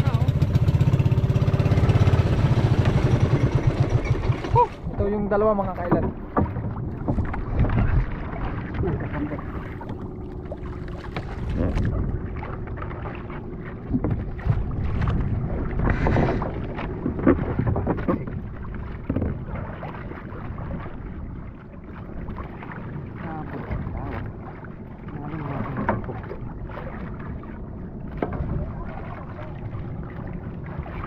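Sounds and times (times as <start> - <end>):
water sloshing against hull: 0.0 - 31.0
knocks and thuds: 5.8 - 8.1, 19.0 - 19.4
wind on microphone: 5.9 - 21.4.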